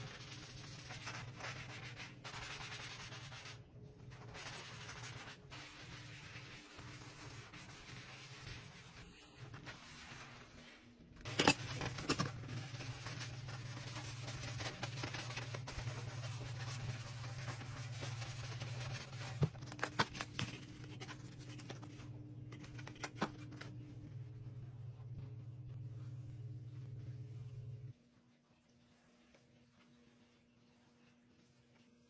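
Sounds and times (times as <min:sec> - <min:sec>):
scrub brush scrubbing: 0:00.0 - 0:19.5
steady low hum: 0:00.0 - 0:28.2.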